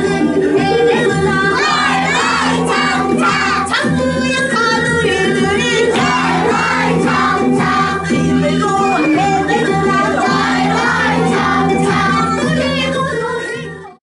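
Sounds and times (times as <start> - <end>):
instrumental accompaniment: 0.0 - 13.9
children and woman singing: 0.0 - 14.0.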